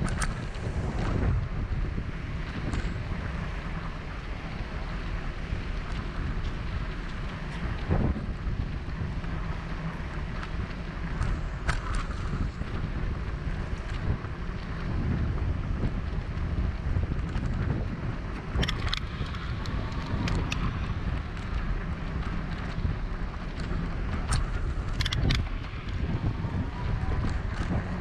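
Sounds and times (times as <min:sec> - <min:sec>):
wind buffeting microphone: 0:00.0 - 0:28.0
sharp clicks and knocks: 0:18.6 - 0:21.6, 0:23.5 - 0:26.0.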